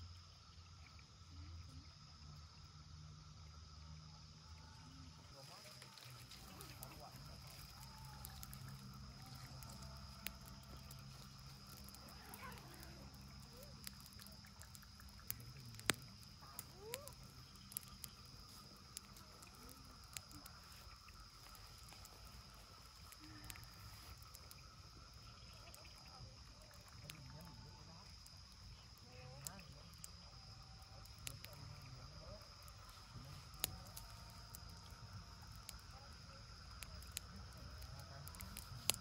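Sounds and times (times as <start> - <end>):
campfire crackling: 0.0 - 39.0
sharp fire pops: 6.4 - 24.7.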